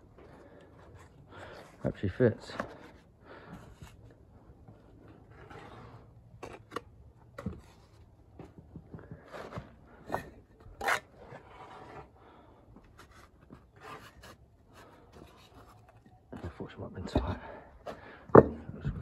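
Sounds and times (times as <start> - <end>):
trowel scraping mortar: 10.7 - 12.2.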